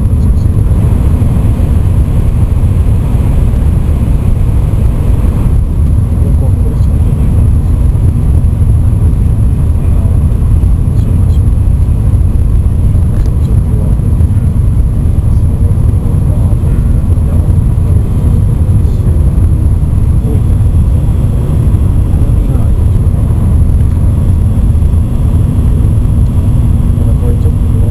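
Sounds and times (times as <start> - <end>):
train cabin low rumble: 0.0 - 27.9.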